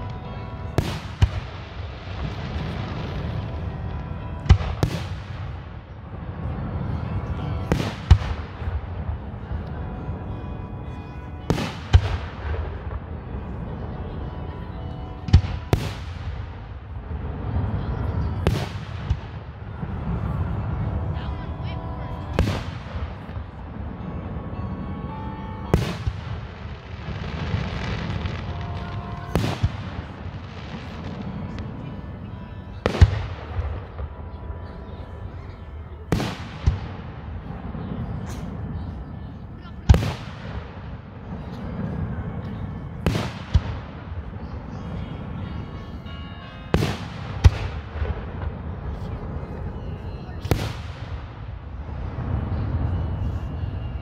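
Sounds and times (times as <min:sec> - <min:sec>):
steady low rumble: 0:00.0 - 0:54.0
fireworks bursting in booms: 0:00.7 - 0:06.6, 0:07.6 - 0:09.6, 0:11.5 - 0:13.5, 0:15.2 - 0:20.9, 0:22.4 - 0:23.6, 0:25.7 - 0:32.0, 0:32.8 - 0:34.4, 0:36.1 - 0:38.7, 0:39.8 - 0:42.4, 0:43.0 - 0:44.4, 0:50.4 - 0:52.9.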